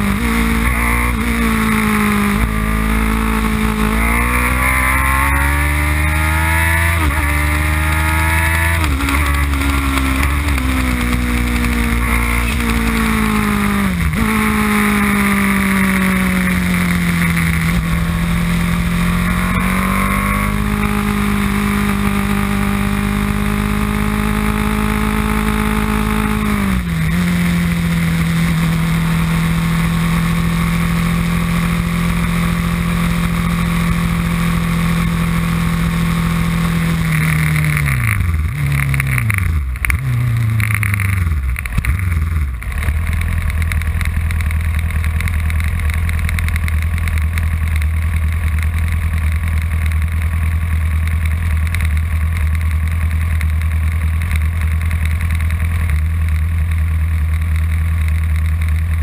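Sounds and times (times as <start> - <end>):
race car engine revving: 0.0 - 42.4.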